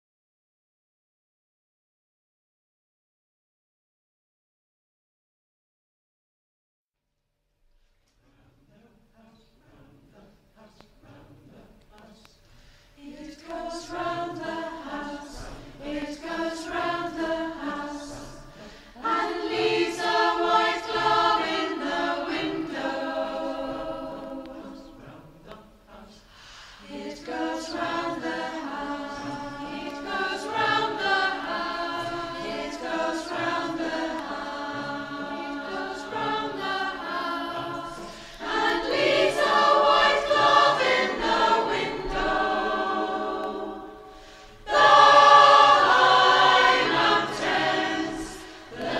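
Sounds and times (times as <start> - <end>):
choir singing: 8.3 - 12.4, 13.0 - 48.9.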